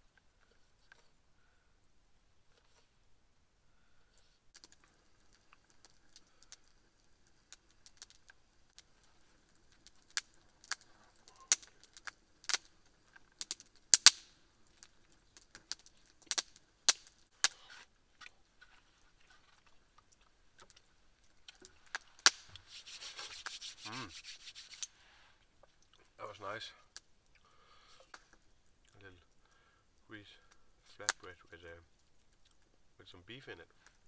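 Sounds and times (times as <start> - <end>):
hands rubbing together: 22.3 - 24.9.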